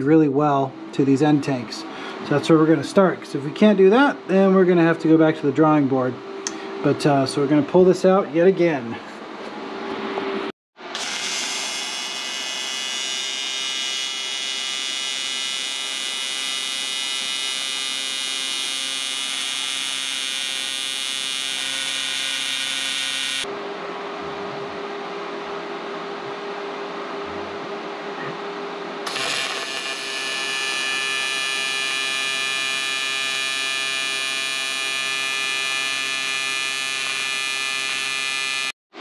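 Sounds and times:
welding arc buzzing: 0:10.9 - 0:23.5, 0:29.1 - 0:38.8.

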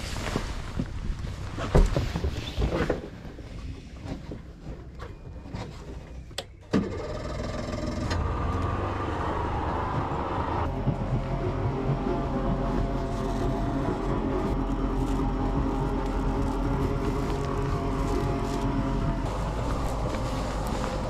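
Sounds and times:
outboard motor running: 0:06.8 - 0:21.0.

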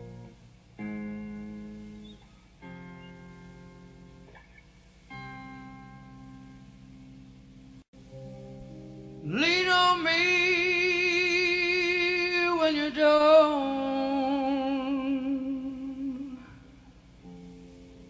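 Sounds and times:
soft keyboard chord: 0:05.1 - 0:16.6
man singing long note with vibrato: 0:09.2 - 0:16.7.

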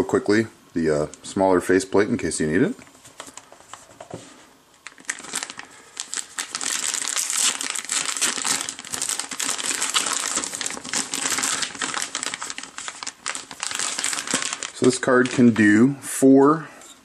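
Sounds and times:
plastic bag crinkling: 0:04.8 - 0:15.9.

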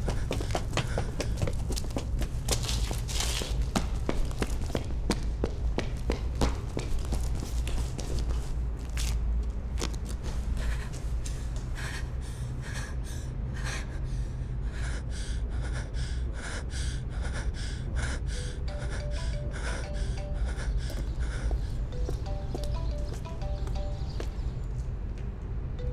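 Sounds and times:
woman breathing hard: 0:00.0 - 0:01.7, 0:10.4 - 0:22.0
high heels on cobblestones: 0:00.0 - 0:11.7, 0:19.0 - 0:25.3
steady low rumble: 0:00.0 - 0:25.9.

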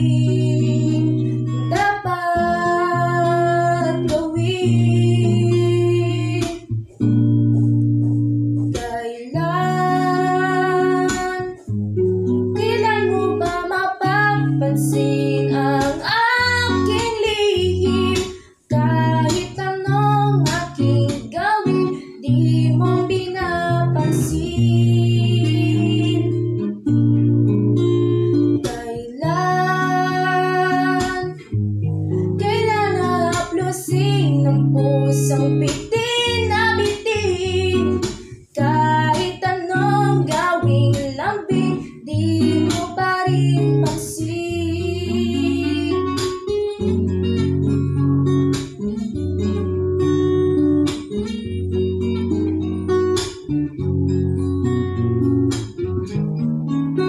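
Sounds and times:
girl singing: 0:00.0 - 0:11.7, 0:12.5 - 0:26.7, 0:28.6 - 0:31.5, 0:32.2 - 0:47.3
guitar accompaniment: 0:00.0 - 0:57.0.

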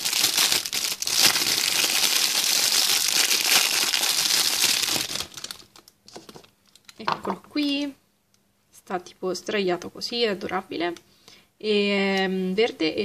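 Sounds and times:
plastic wrapper crinkling: 0:00.0 - 0:07.1.

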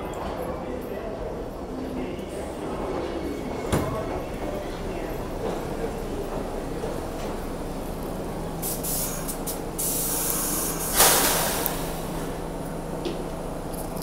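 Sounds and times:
idling train hum: 0:00.0 - 0:14.0
train air brakes hissing: 0:08.5 - 0:12.4.

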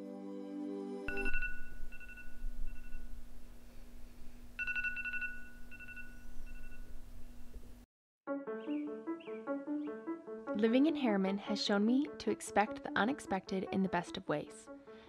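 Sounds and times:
soft ambient music: 0:00.0 - 0:03.0, 0:08.3 - 0:15.0
phone alarm beeping: 0:01.1 - 0:03.1, 0:04.6 - 0:07.0
low steady hum: 0:01.1 - 0:07.8.

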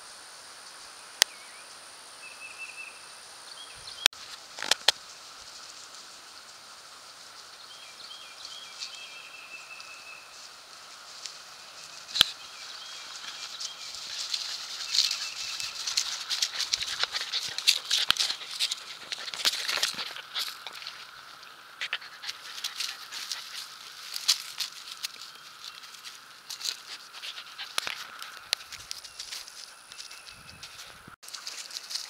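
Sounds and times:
dogs running through dry grass: 0:04.2 - 0:32.0.

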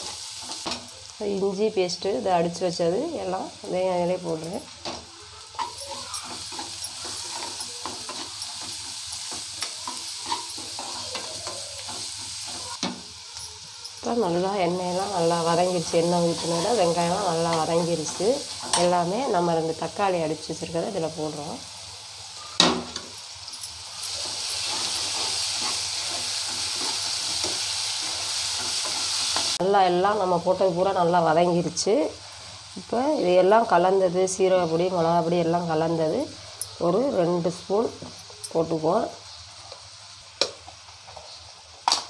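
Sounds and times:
onions sizzling in oil: 0:00.0 - 0:42.0
metal spatula scraping a pan: 0:04.9 - 0:13.6, 0:23.9 - 0:29.6.

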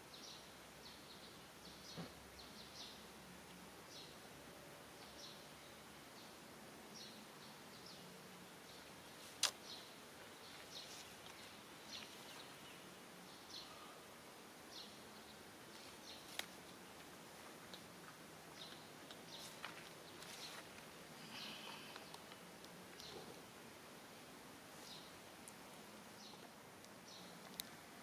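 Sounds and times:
faint outdoor ambience: 0:00.0 - 0:28.0
sharp clicks: 0:09.4 - 0:09.6.

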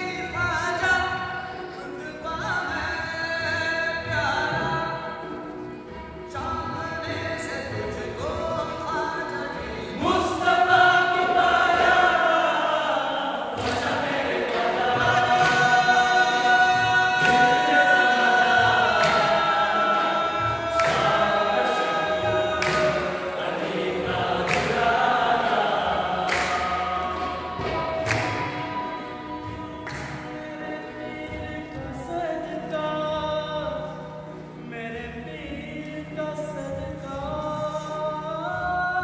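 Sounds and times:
male choir singing: 0:06.4 - 0:34.0
steady handclaps: 0:13.5 - 0:31.4.

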